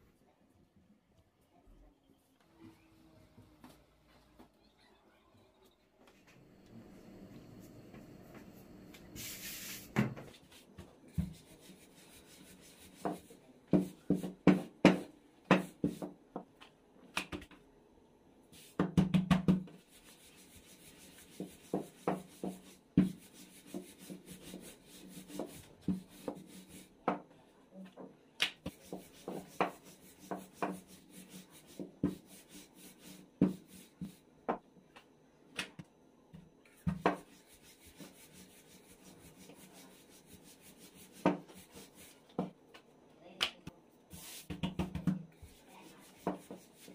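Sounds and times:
short hiss: 9.2 - 10.0
hands knocking and rubbing dough: 12.9 - 17.6, 18.6 - 19.9, 21.0 - 27.3, 28.0 - 32.6, 33.3 - 38.2, 39.0 - 42.6, 43.4 - 46.9.

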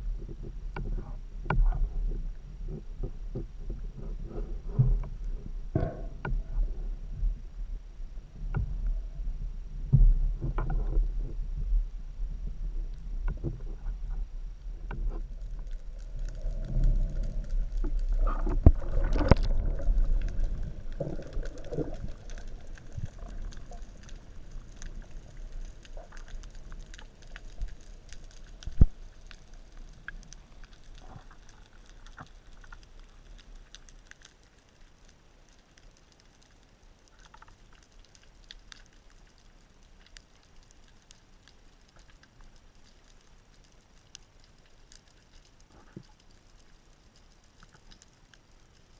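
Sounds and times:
faint clicks underwater: 12.9 - 48.9.

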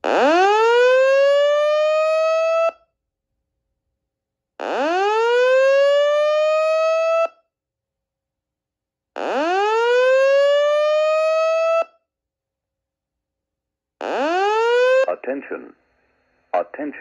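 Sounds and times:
fire alarm whoop tone: 0.1 - 2.9, 4.6 - 7.4, 9.2 - 12.0.

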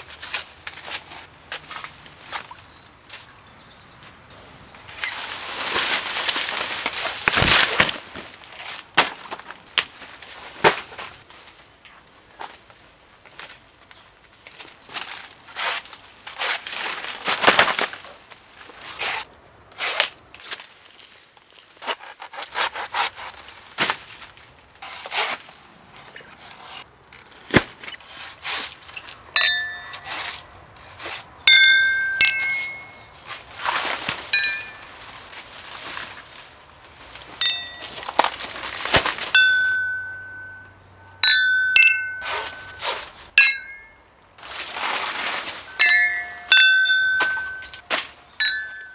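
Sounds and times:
rustling and swishing: 4.3 - 11.8, 22.8 - 40.6, 41.9 - 48.9
glasses clinking: 29.4 - 30.1, 31.5 - 33.1, 34.3 - 34.9, 37.4 - 38.0, 39.4 - 42.8, 43.4 - 44.0, 45.7 - 47.8, 48.4 - 48.9.

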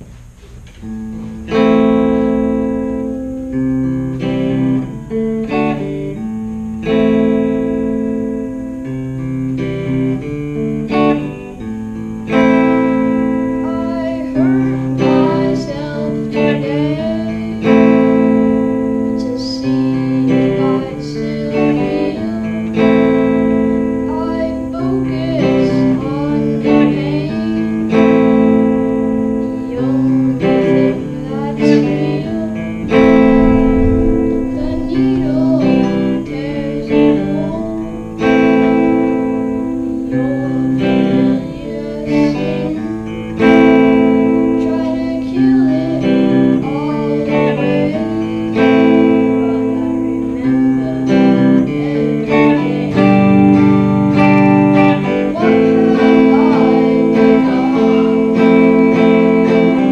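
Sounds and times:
electric guitar strummed chords: 0.0 - 59.9
boy singing: 12.2 - 59.9.

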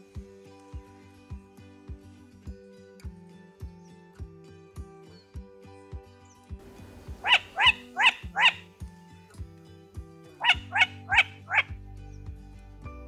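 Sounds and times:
background music with low notes: 0.0 - 13.0
crane calls: 7.1 - 8.7, 10.4 - 11.7.

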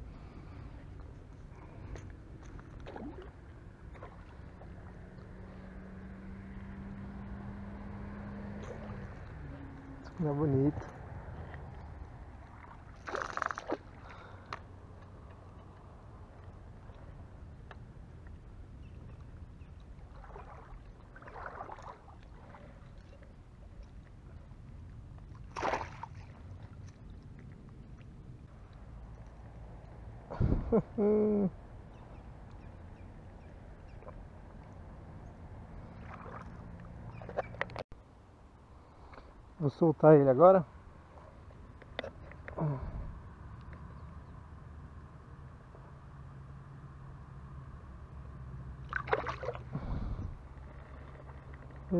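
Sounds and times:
water sloshing: 1.6 - 5.4, 8.0 - 14.6, 19.2 - 29.3, 35.6 - 37.8, 48.8 - 51.9
sharp water splash: 12.5 - 14.1, 20.1 - 22.6, 25.4 - 26.6, 35.9 - 37.5, 48.8 - 49.8
wind rumble on microphone: 26.3 - 31.0, 42.7 - 44.7, 49.7 - 51.9.

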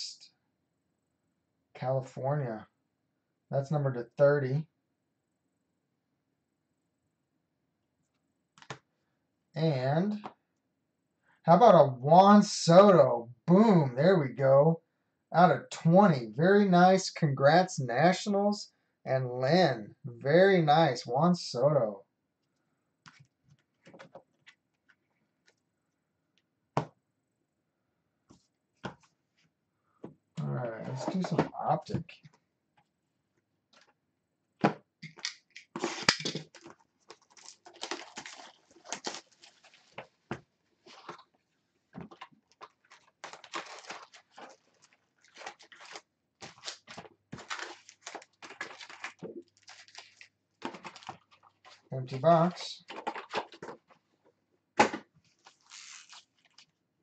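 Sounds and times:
foil packs crinkling: 35.8 - 40.2, 42.0 - 51.9, 52.8 - 54.0, 55.3 - 56.7.

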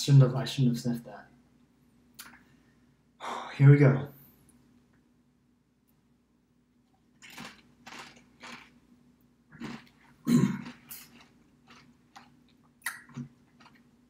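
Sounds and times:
tortilla chip crunching: 7.2 - 8.8, 9.5 - 14.0.

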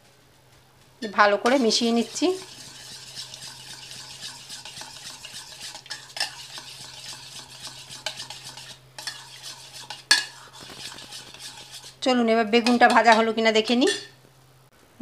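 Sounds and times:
spoon stirring and scraping in bowl: 1.0 - 14.2
spoon clinking against metal bowl: 2.4 - 11.6, 12.6 - 14.2.

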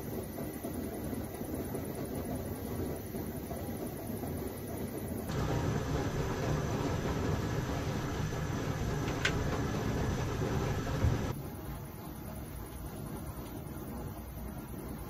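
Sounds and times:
camp stove burner rumbling: 0.0 - 15.0
percolator perking coffee: 5.3 - 11.3.

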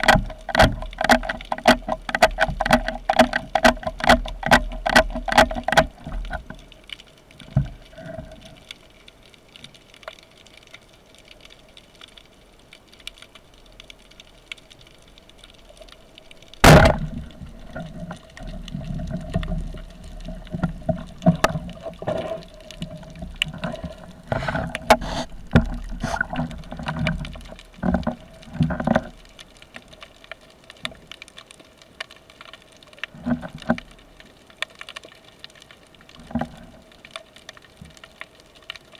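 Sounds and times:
underwater knocks and rattles: 0.0 - 8.7, 15.4 - 31.1, 33.0 - 34.2, 36.1 - 38.2
rushing water: 0.0 - 38.9
underwater speargun crack: 16.6 - 17.3.

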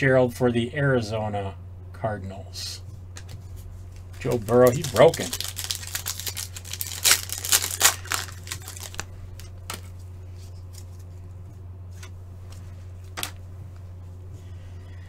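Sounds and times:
low electrical hum: 0.0 - 15.0
card packaging crinkling: 3.2 - 11.1.

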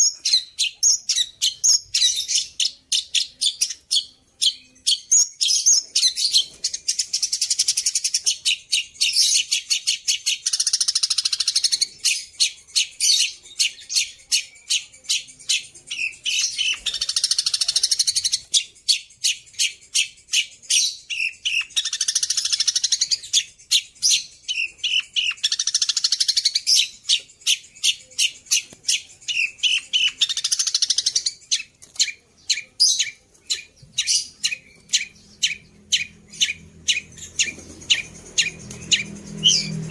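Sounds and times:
bird singing sharp chips: 0.0 - 39.9
buzzy bird trills: 10.3 - 39.9.

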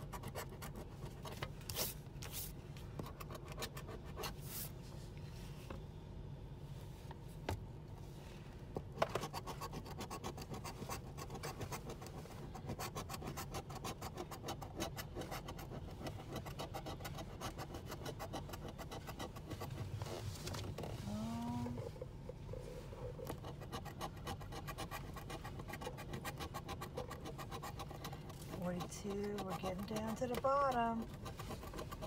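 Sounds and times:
scraping lottery ticket: 22.6 - 32.0.

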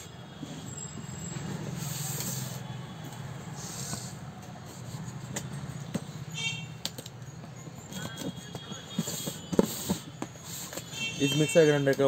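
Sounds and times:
cardboard rubbing and sliding: 8.9 - 10.8.

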